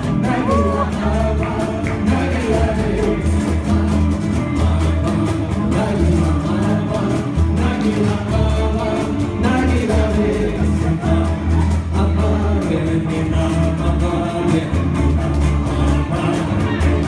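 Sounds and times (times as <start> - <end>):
steady beat: 0.0 - 12.3
man singing into a microphone: 0.0 - 17.0
second guitar: 0.0 - 17.0
strummed acoustic guitar: 0.0 - 17.0.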